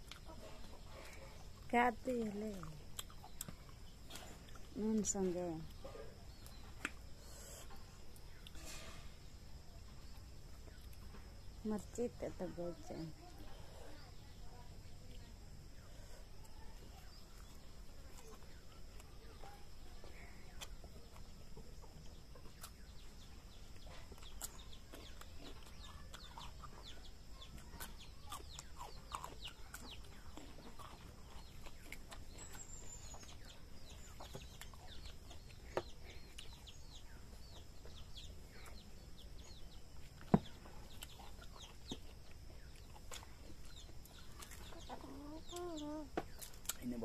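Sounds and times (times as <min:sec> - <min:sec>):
chickens clucking: 0:40.4 - 0:46.5.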